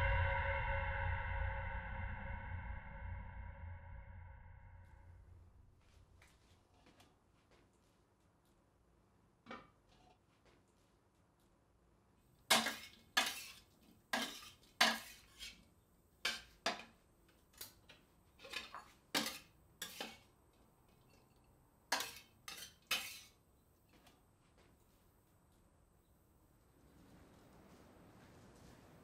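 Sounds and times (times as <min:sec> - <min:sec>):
dishes and cutlery clinking: 0:12.5 - 0:15.6, 0:16.3 - 0:17.0, 0:17.6 - 0:20.3, 0:21.0 - 0:23.4.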